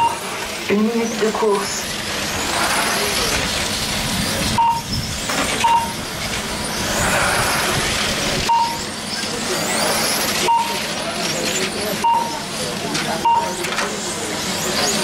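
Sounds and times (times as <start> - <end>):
short beeps: 0.0 - 0.2, 4.6 - 4.9, 5.6 - 6.0, 8.4 - 8.9, 10.4 - 10.9, 12.0 - 12.4, 13.2 - 13.6
rc car motors whining: 0.0 - 15.0.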